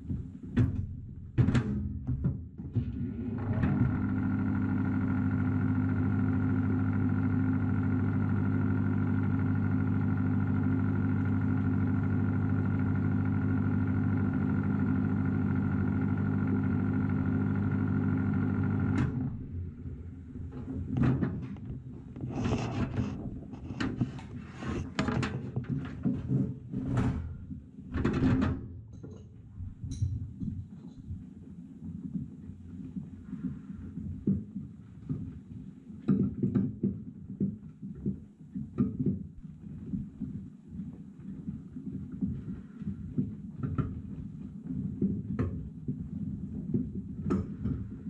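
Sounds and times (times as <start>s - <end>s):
oven door knocks and clatters: 0.5s - 3.1s, 25.0s - 28.7s
microwave oven humming: 2.8s - 25.7s.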